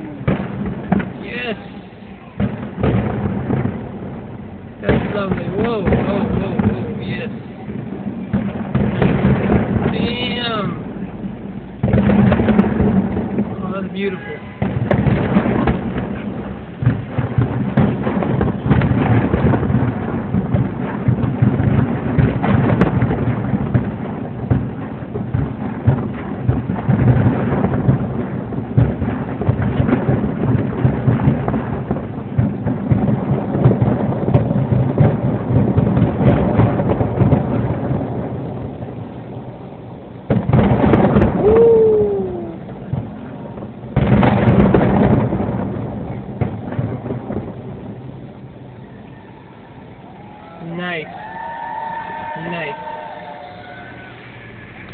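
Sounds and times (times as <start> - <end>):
fireworks booms and crackles: 0.0 - 54.9
firework falling whistle: 40.4 - 42.9, 48.6 - 54.9.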